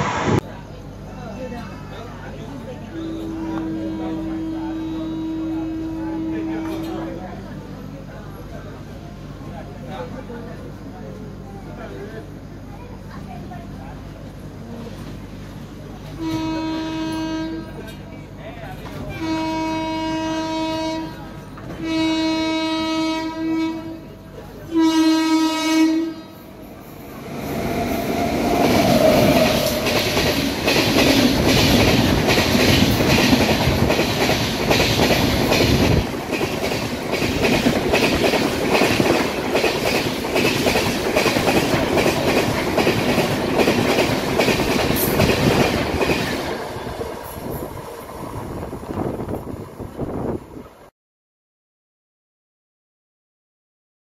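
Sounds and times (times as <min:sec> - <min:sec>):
train passing with loud rush: 0:00.0 - 0:50.9
locomotive horn blasts: 0:02.9 - 0:07.0, 0:16.2 - 0:17.8, 0:19.2 - 0:21.2, 0:21.8 - 0:24.1, 0:24.7 - 0:26.4.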